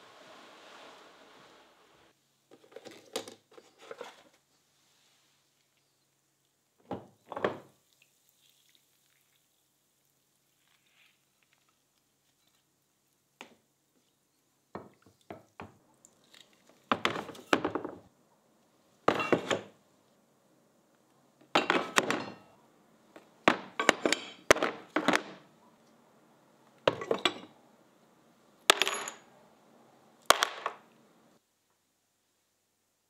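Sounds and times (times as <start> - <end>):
metal parts clattering in bin: 28.7 - 29.2.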